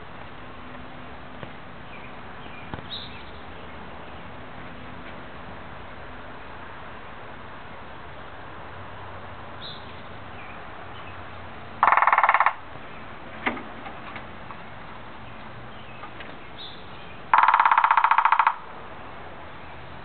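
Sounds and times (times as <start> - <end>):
woodpecker drumming on hollow wood: 11.8 - 12.7, 17.2 - 18.8.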